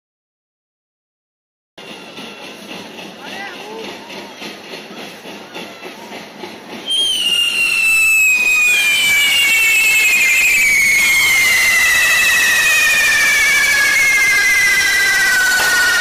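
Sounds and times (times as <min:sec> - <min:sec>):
shrill firework whistles: 0:06.8 - 0:16.0.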